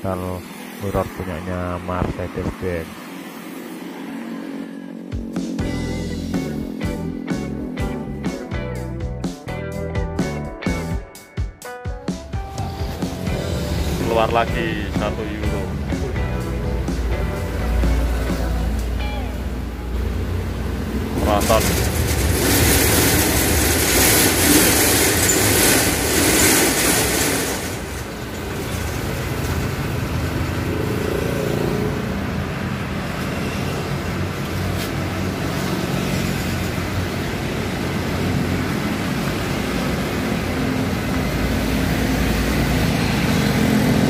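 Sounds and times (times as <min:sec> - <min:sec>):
diesel truck engine rumble: 0:12.6 - 0:31.1.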